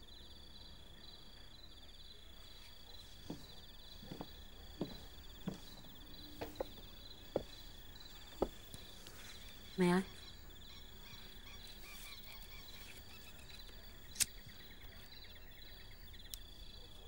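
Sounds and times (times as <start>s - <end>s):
crickets trilling: 0.0s - 17.0s
boots on wooden porch: 2.6s - 9.6s.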